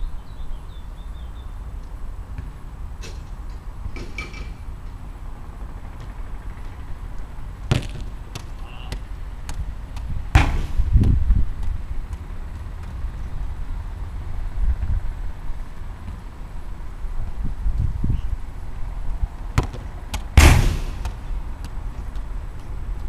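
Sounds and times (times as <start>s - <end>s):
steady low outdoor rumble: 0.0s - 23.0s
sharp knocks: 7.7s - 9.0s.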